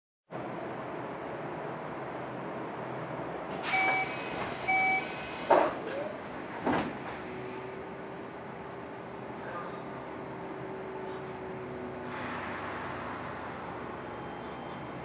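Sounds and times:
two-tone electronic beeps: 3.7 - 4.1, 4.7 - 5.1
train doors thudding shut: 5.4 - 7.6.

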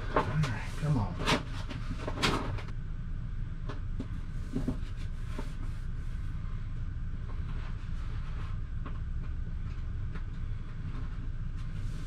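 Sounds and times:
wallpaper rustling and clicking: 0.0 - 2.7
steady low hum: 0.0 - 12.0.

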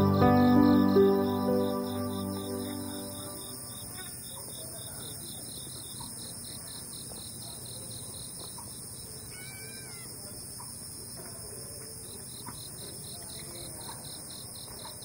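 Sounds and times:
high insect hiss: 0.0 - 4.2
crickets chirping: 0.0 - 15.0.

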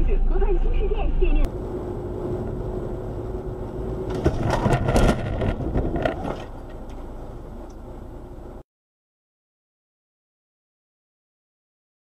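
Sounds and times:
road noise inside a car: 0.0 - 8.6
car crash: 4.0 - 7.0
metal crunching and scraping: 4.0 - 7.1.

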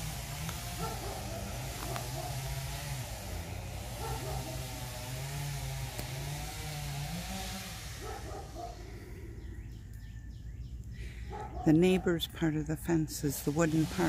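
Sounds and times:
engine running: 0.0 - 10.0.

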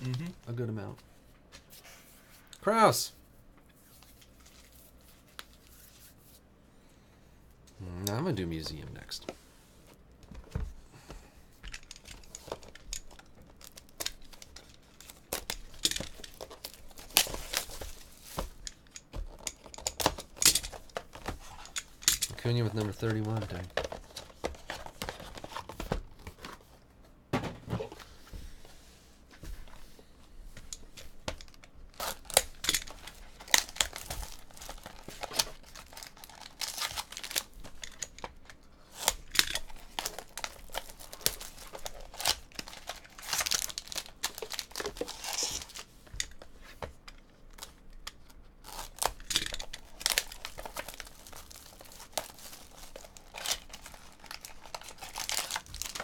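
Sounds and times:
plastic wrapping crinkling and tearing: 31.9 - 38.2, 38.9 - 45.9, 48.6 - 56.0.

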